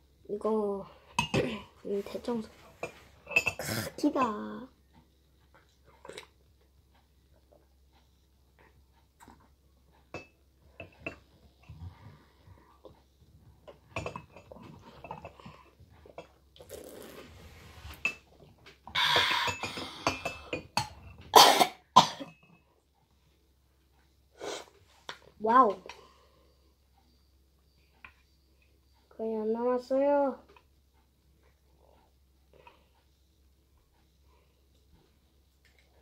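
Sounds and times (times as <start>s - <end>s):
person coughing: 21.3s - 22.3s.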